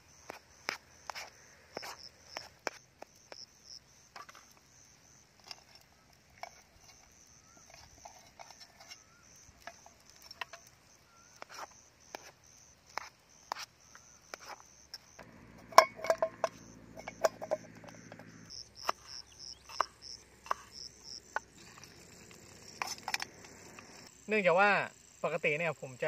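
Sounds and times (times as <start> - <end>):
insects chirping: 0.0 - 26.0
utensil clinking against pot: 15.6 - 18.0.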